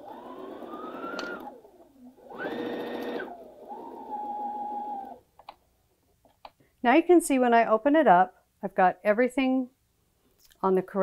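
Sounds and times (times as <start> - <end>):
sewing machine stitching: 0.0 - 5.2.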